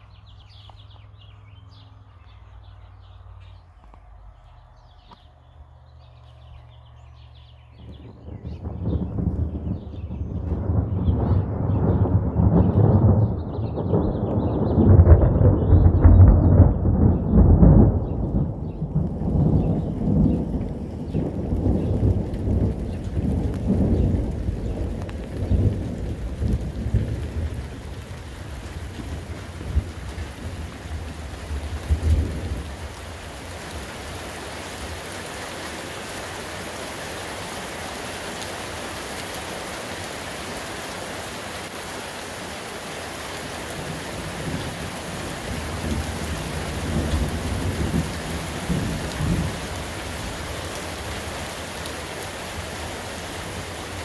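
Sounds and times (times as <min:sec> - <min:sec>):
steady rain hiss: 0:00.0 - 0:16.0, 0:16.7 - 0:54.0
rolling thunder: 0:07.7 - 0:34.9, 0:43.6 - 0:54.0.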